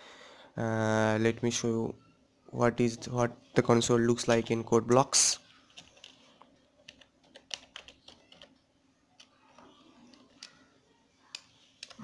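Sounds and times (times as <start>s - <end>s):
faint keyboard typing: 5.5s - 12.0s.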